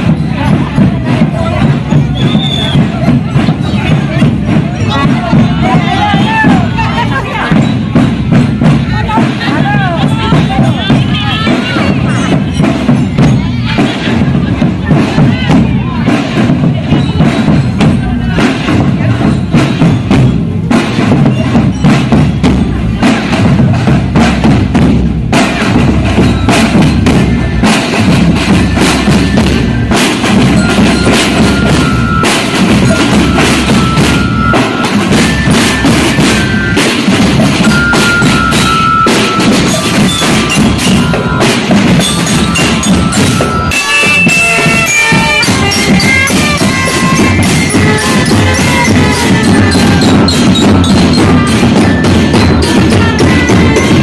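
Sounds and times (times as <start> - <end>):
marching drum line: 0.0 - 54.0
bell lyre melody: 25.8 - 54.0.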